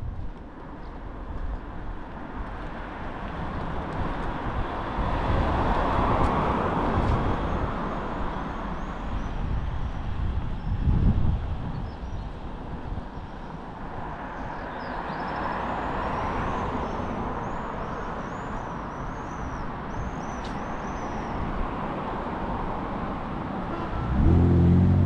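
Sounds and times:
low traffic rumble: 0.0 - 25.0
vehicle passing close: 23.7 - 25.0.

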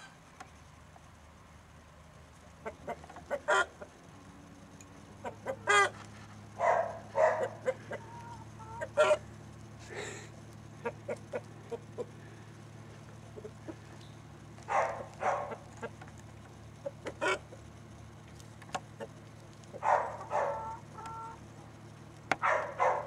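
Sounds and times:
low steady hum: 0.0 - 23.0
chickens clucking: 2.6 - 4.0, 5.1 - 9.2, 10.7 - 17.8, 18.7 - 21.5.

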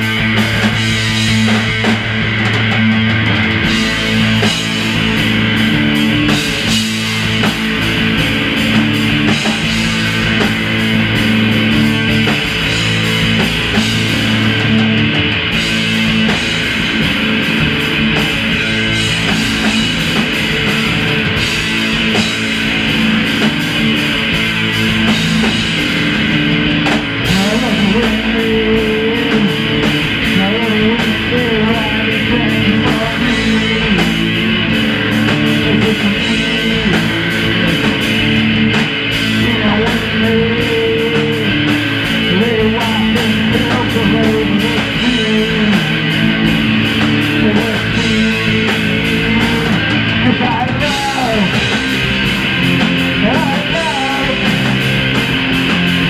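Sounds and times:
rock band playing loud: 0.0 - 56.0
man singing: 27.2 - 38.7, 39.3 - 51.9, 53.1 - 54.9.

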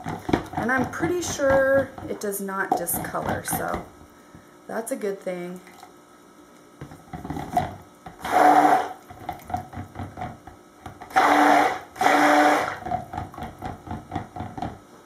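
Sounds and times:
knocks and stirring in plastic jug: 0.0 - 3.9, 6.8 - 8.3, 9.0 - 11.1, 12.7 - 14.8
stick blender motor whine: 7.4 - 9.6, 11.0 - 13.0.

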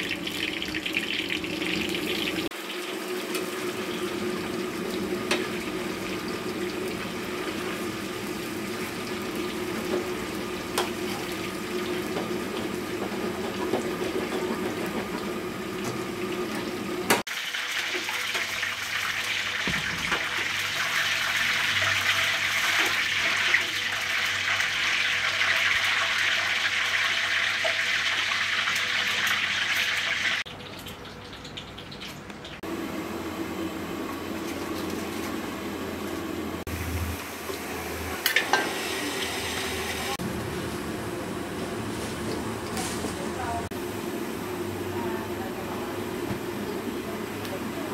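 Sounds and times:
water running: 0.0 - 32.7.

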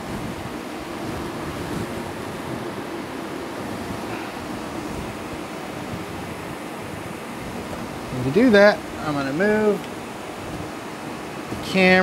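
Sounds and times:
ventilation air rushing: 0.0 - 12.0.

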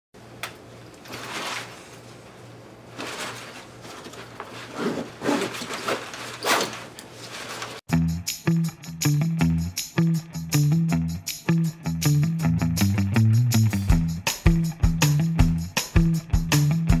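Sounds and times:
backpack rustling and zipping: 2.9 - 7.8
music with bass and guitar: 7.9 - 17.0.

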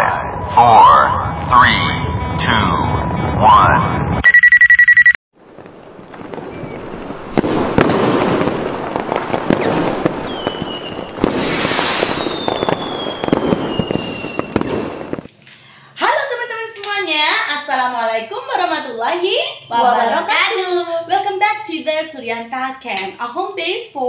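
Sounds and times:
short electronic beeps: 4.2 - 5.2
firework falling whistle: 4.2 - 15.3
fireworks crackling and banging: 5.4 - 15.4.

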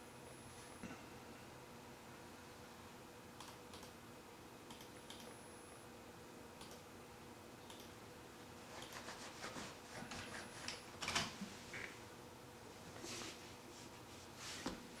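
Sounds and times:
faint steady hum: 0.0 - 15.0
soft clicks: 3.4 - 4.0, 4.7 - 5.4, 6.6 - 6.9, 7.6 - 8.0.

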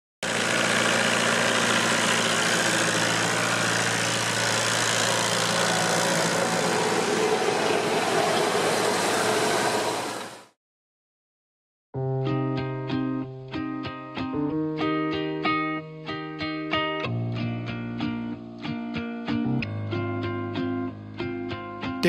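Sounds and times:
tractor diesel engine running: 0.2 - 10.5.

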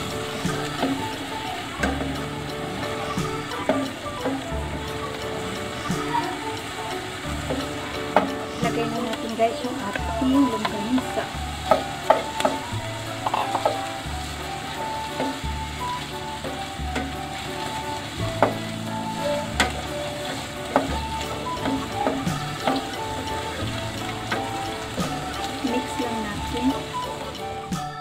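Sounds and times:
spatula tapping and scraping pan: 0.0 - 27.4
sausage sizzling in oil: 0.0 - 28.0.

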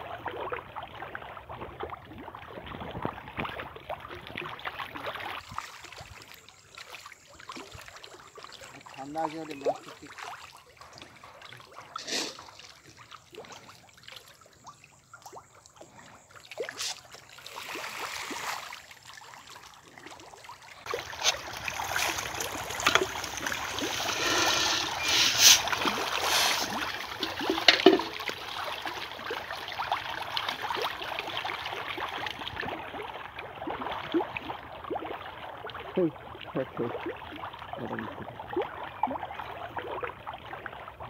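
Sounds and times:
fish splashing in water: 0.0 - 41.0.

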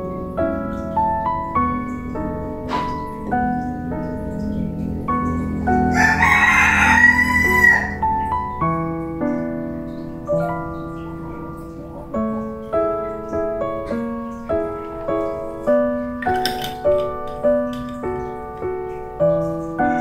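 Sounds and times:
background piano music: 0.0 - 20.0
rooster crowing: 5.7 - 8.3.

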